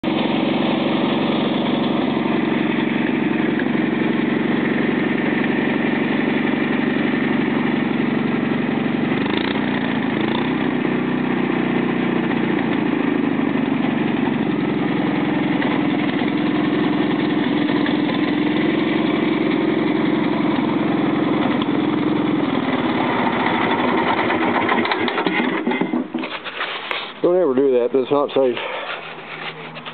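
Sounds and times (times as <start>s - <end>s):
small lawn tractor engine idling: 0.0s - 29.9s.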